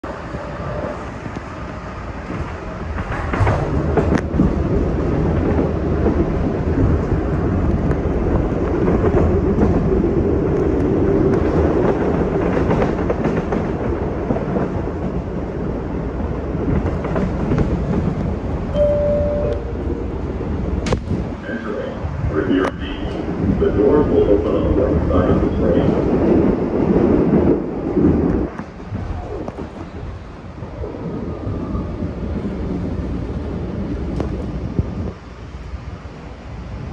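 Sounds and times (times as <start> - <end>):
train wheels rumbling on rail: 0.0 - 36.9
short high tone: 18.8 - 20.2.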